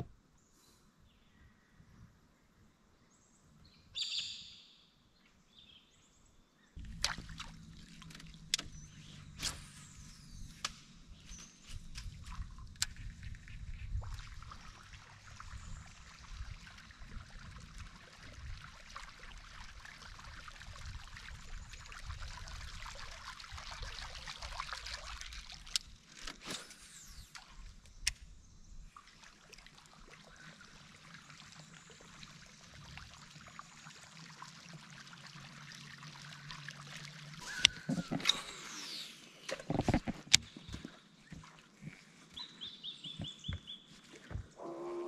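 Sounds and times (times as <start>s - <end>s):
low uneven rumble: 6.8s - 23.2s
water trickling and lapping: 6.8s - 45.0s.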